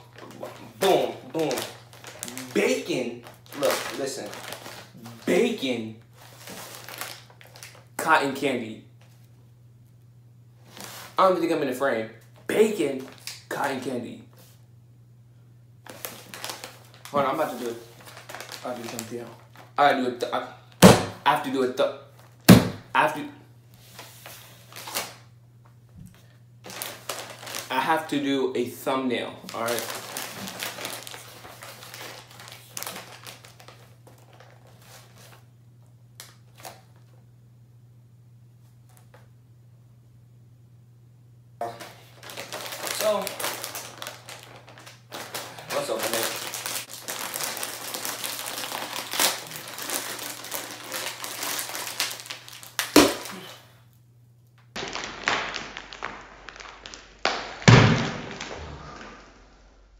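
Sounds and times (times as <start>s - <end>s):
foil bag crinkling: 0.0s - 8.0s, 10.6s - 11.4s, 15.8s - 19.9s, 23.8s - 25.2s, 26.2s - 28.3s, 29.2s - 35.5s, 36.2s - 37.0s, 41.6s - 53.8s, 54.7s - 58.5s.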